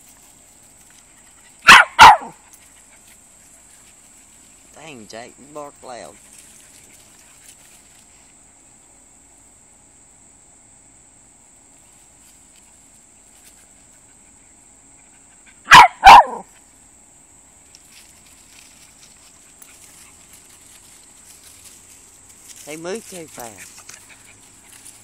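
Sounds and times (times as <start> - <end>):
dog barking: 1.6 - 2.4, 15.7 - 16.5.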